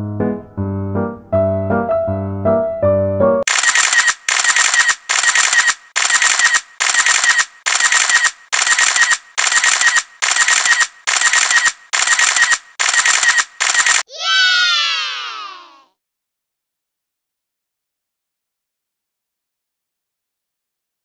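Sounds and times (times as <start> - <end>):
repeated electronic noise bursts: 3.5 - 14.0.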